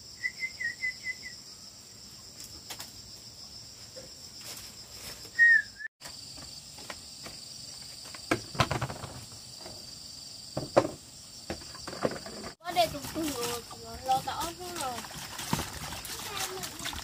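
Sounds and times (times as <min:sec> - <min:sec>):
insects droning: 0:00.0 - 0:17.0
soft knocks: 0:10.6 - 0:12.6.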